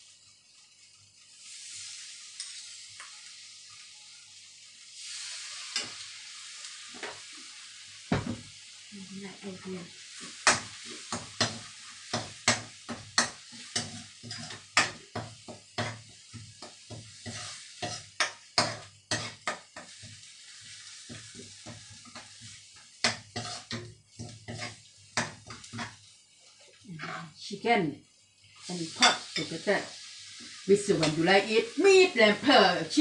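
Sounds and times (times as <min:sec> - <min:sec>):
paste sizzling: 0:00.0 - 0:33.0
metal spoon scraping wok: 0:10.2 - 0:20.2, 0:21.1 - 0:26.0, 0:28.7 - 0:29.9.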